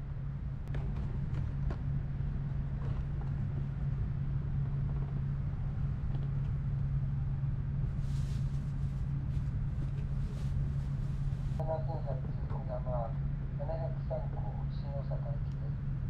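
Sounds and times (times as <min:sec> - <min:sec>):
train cabin hum: 0:00.0 - 0:16.0.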